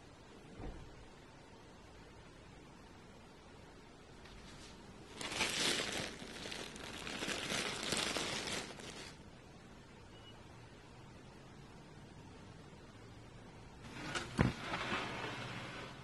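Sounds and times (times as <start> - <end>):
plastic bag crinkling: 5.1 - 9.2.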